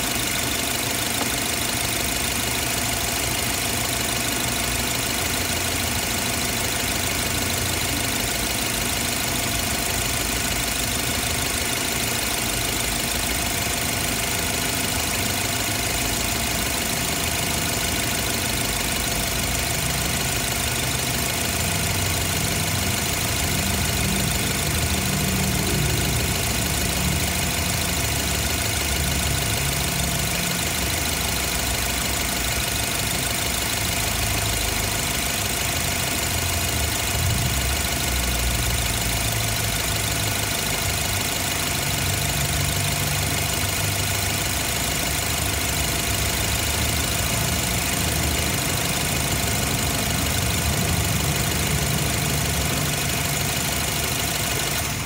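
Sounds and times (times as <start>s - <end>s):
car engine idling: 0.0s - 55.0s
engine whine: 45.4s - 55.0s.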